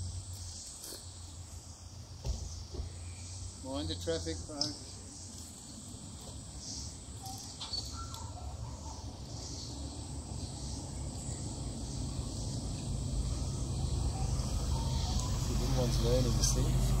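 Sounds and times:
high insect hiss: 0.0s - 17.0s
faint bird calls: 6.2s - 9.9s, 10.6s - 17.0s.

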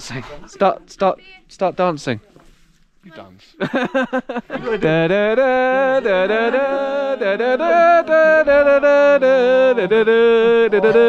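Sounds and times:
person singing: 4.6s - 11.0s.

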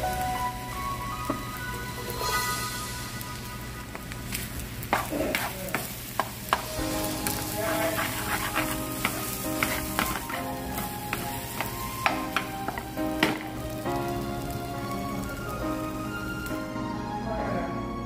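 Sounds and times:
rice sizzling in oil: 0.0s - 17.0s
spatula scraping frying pan: 4.8s - 13.7s.

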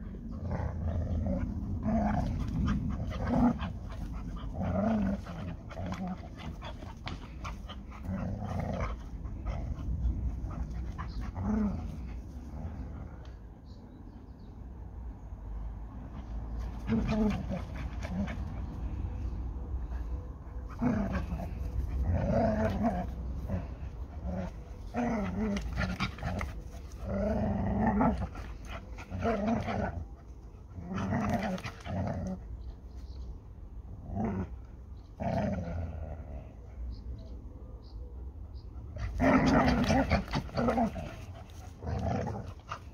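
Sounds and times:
dog growling: 0.0s - 13.3s, 16.2s - 19.0s, 20.6s - 30.1s, 30.7s - 32.5s, 38.9s - 42.9s
dogs panting: 0.0s - 13.4s.

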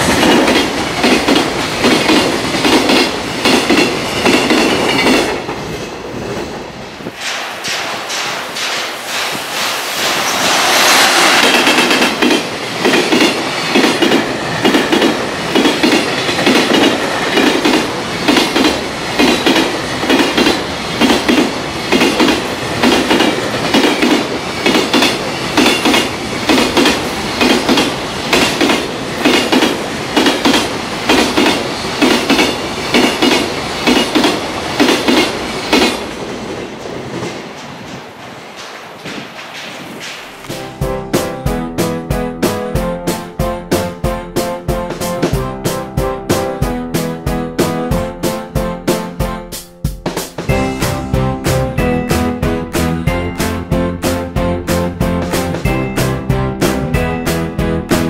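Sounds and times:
train wheels clickety-clack: 0.0s - 40.7s, 49.9s - 51.8s, 55.0s - 58.0s
train rushing past: 0.0s - 58.0s.

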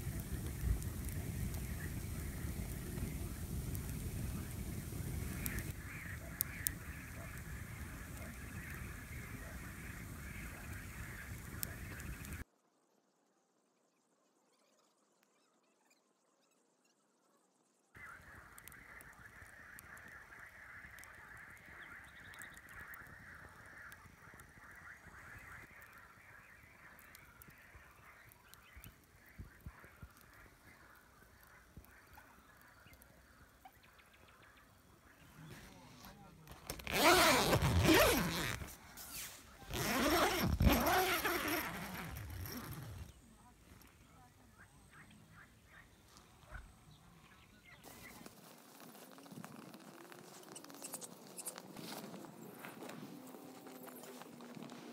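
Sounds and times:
campfire crackling and snapping: 0.0s - 12.4s, 18.0s - 33.7s, 35.6s - 44.1s, 47.8s - 54.9s
rustling hiss: 0.0s - 12.4s, 35.0s - 44.2s.

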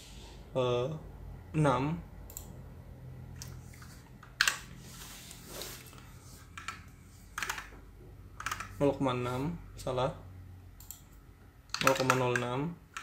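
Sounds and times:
keyboard keystrokes: 11.7s - 13.0s.

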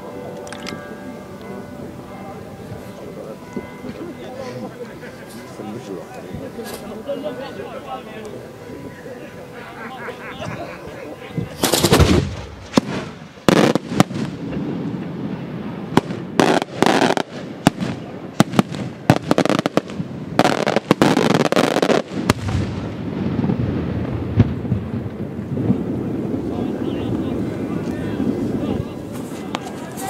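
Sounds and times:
crackling reports: 5.2s - 30.0s
firework shells bursting: 11.6s - 14.4s.

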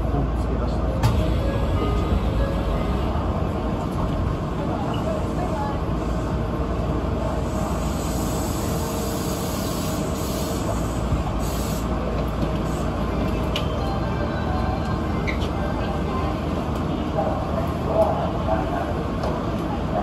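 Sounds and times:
train hum and rumble: 0.0s - 20.0s.

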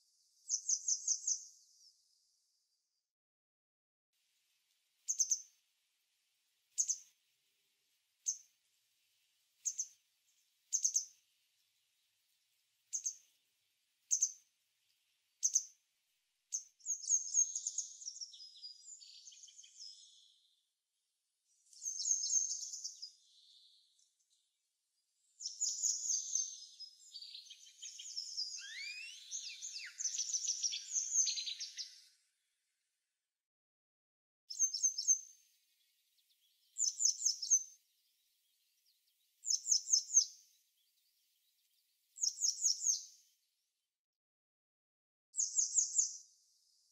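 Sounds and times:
songbird call notes: 0.1s - 1.9s, 5.0s - 5.6s, 6.7s - 7.2s, 8.2s - 8.6s, 9.6s - 13.4s, 14.0s - 15.8s, 16.5s - 20.6s, 21.5s - 24.4s, 25.0s - 32.3s, 34.5s - 43.5s, 45.4s - 46.9s
birds twittering: 25.4s - 32.1s, 34.5s - 43.0s.

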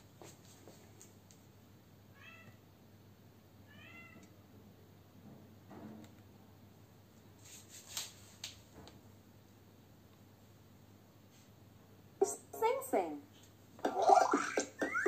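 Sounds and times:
cat meowing faintly: 2.2s - 2.6s, 3.7s - 4.3s.

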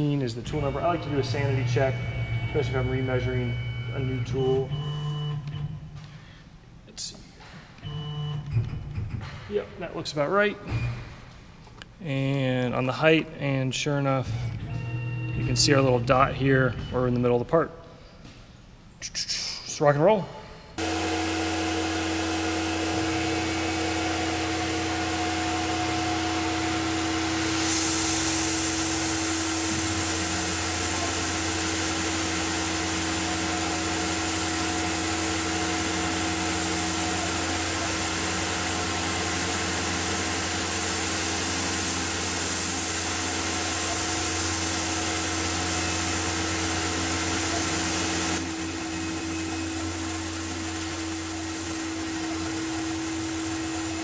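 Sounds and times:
mill spindle whining: 0.0s - 6.1s, 20.8s - 54.0s
coolant spray hissing: 20.8s - 54.0s.

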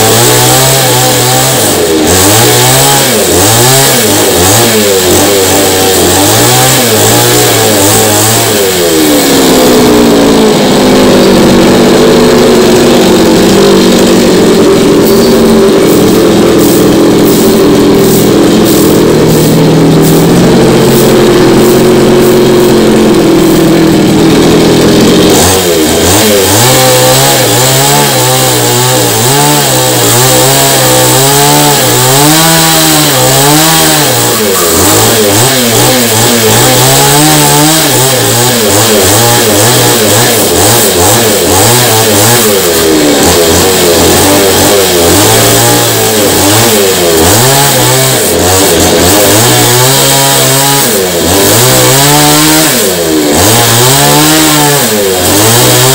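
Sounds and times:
chainsaw cutting wood: 0.0s - 55.9s.

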